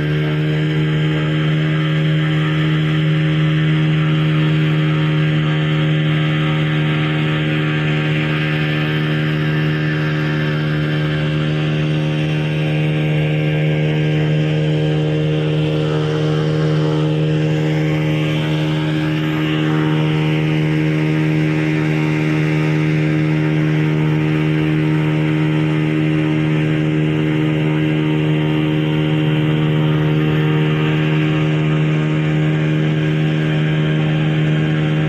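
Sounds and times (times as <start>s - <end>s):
boat motor running: 0.0s - 35.0s.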